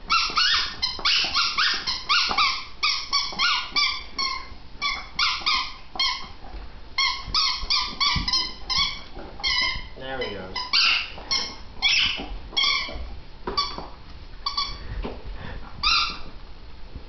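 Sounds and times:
dog whining and yipping: 0:00.0 - 0:10.0, 0:10.6 - 0:13.8, 0:15.8 - 0:16.3.

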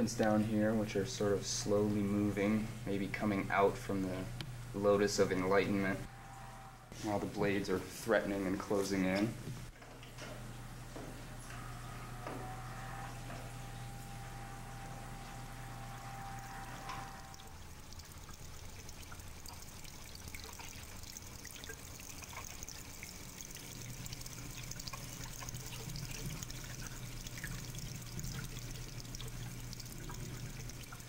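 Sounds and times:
steady low hum: 0:00.0 - 0:31.0
small drips: 0:08.6 - 0:31.0
water trickling and pouring: 0:11.4 - 0:31.0.

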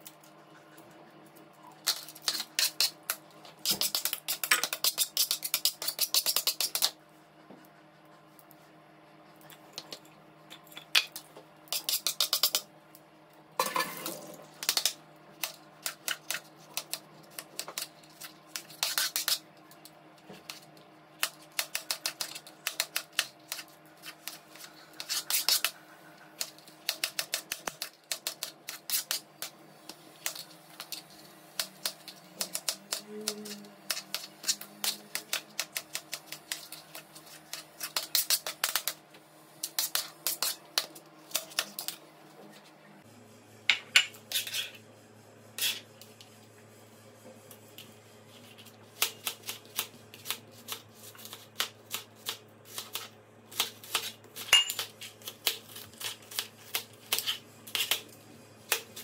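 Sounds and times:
knife scraping board: 0:44.3 - 0:44.8, 0:45.6 - 0:45.9.

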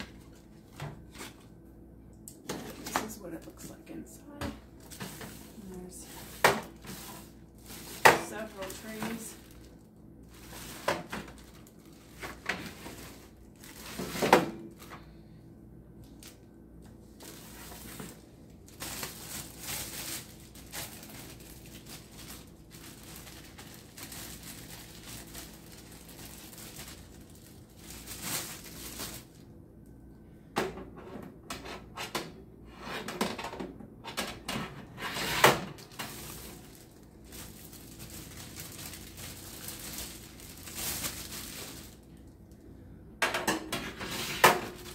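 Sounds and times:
plastic wrap crinkling: 0:00.0 - 0:01.6, 0:02.4 - 0:15.0, 0:16.0 - 0:29.5, 0:35.7 - 0:42.6, 0:44.5 - 0:44.9.

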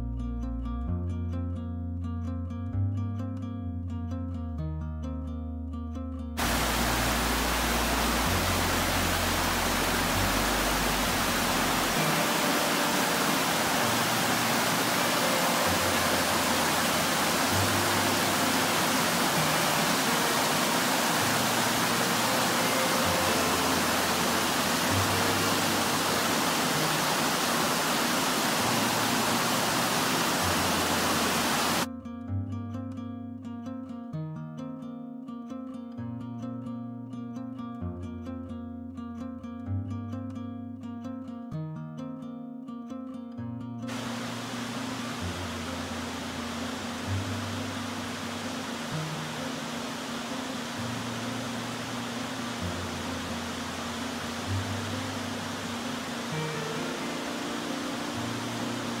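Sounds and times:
creek water rushing over rocks: 0:06.4 - 0:31.9, 0:43.9 - 0:59.0.

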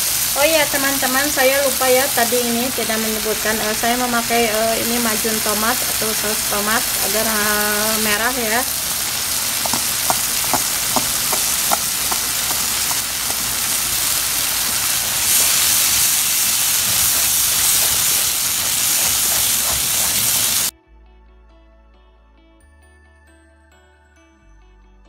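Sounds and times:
food sizzling in a frying pan: 0:00.0 - 0:20.7.

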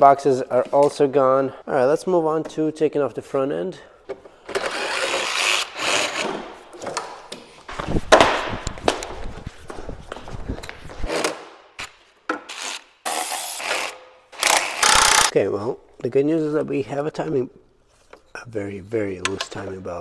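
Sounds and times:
tools scraping against parts: 0:12.5 - 0:15.3.

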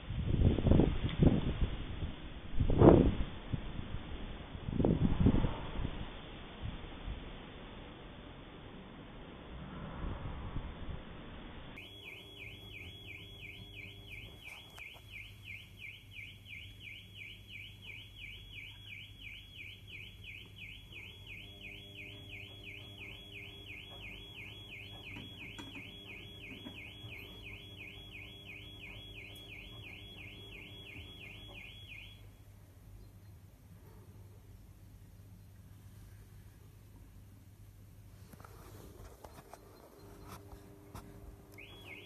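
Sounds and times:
car alarm warbling: 0:11.8 - 0:32.5, 0:40.7 - 0:42.0.

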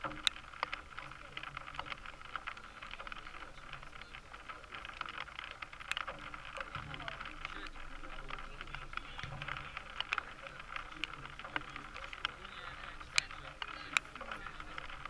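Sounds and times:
distant voices of players: 0:00.0 - 0:15.0
small crackles: 0:00.0 - 0:15.0.

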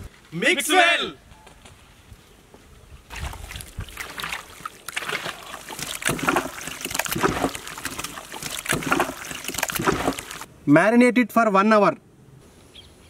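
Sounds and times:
wet squelching of meat mixing: 0:03.4 - 0:10.5.

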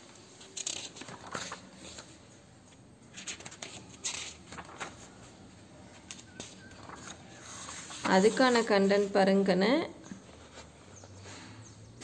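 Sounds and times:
book pages turning: 0:00.2 - 0:09.1.

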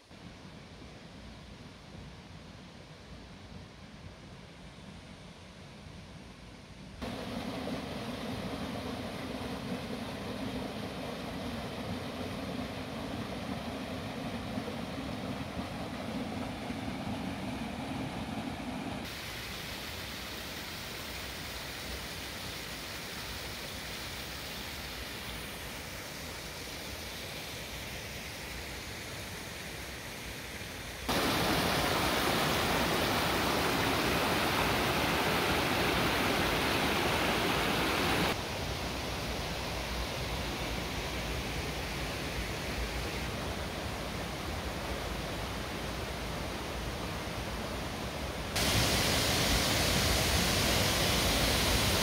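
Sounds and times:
waterfall splashing: 0:07.0 - 0:25.4, 0:31.1 - 0:38.4, 0:48.6 - 0:52.0.

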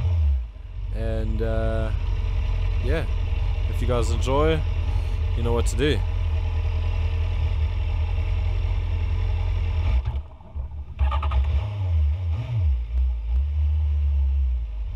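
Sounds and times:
motorcycle engine idling: 0:00.4 - 0:11.5.

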